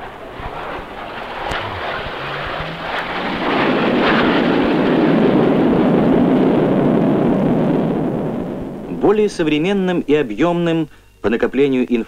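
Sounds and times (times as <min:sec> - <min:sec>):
jet aircraft flying overhead: 0:00.0 - 0:09.0.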